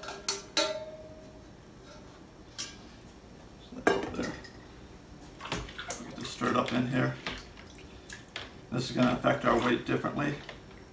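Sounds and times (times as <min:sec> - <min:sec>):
pot clattering on table: 0:00.0 - 0:01.0.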